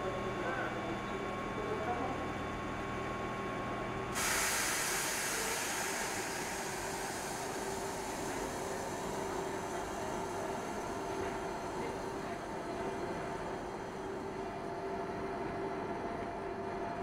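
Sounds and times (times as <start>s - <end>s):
train electrical hum: 0.0s - 17.0s
compressed air hissing: 4.2s - 9.0s.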